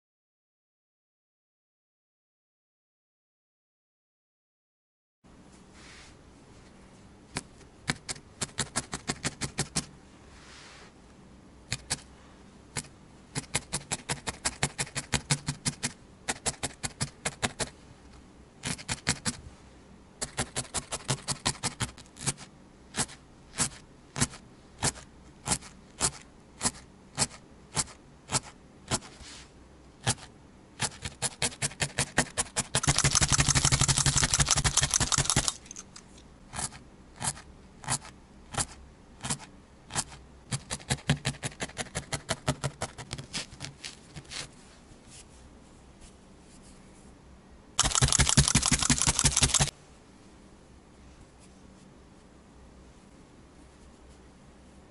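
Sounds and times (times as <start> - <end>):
felting needle poking through wool: 7.3 - 9.9, 11.7 - 12.1, 12.7 - 17.8, 18.6 - 19.4, 20.2 - 29.4, 30.0 - 35.8, 36.5 - 44.5.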